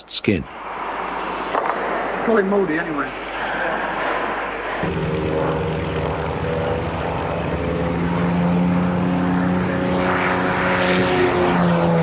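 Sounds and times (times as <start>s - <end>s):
propeller plane flying overhead: 0.4s - 12.0s.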